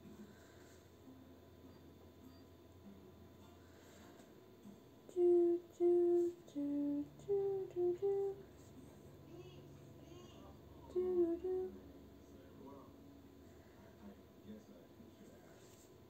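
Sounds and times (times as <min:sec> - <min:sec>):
woman humming: 0:05.1 - 0:08.5, 0:10.8 - 0:11.8.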